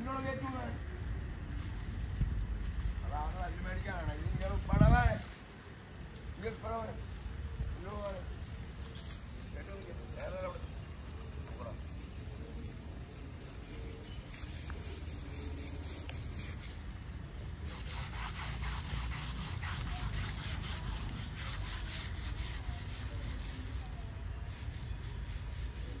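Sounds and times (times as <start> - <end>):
scrubbing strokes on hide: 13.5 - 26.0.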